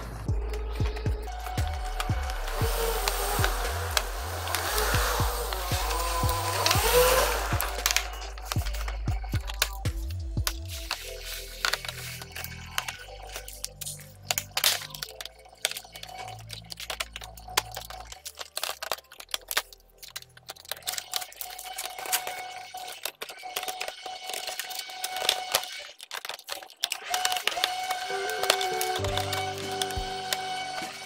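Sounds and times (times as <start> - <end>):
irregular clicks and rattles: 0.0 - 31.0
quiet background music: 0.0 - 31.0.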